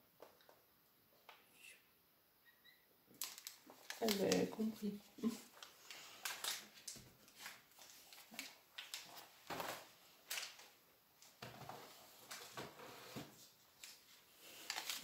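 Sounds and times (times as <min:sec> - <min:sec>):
handling things on a shelf: 0:03.2 - 0:15.0.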